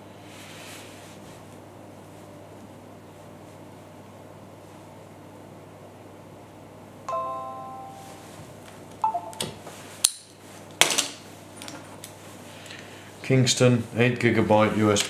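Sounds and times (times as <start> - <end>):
computer system chimes: 7.1 - 8.4, 9.0 - 9.5.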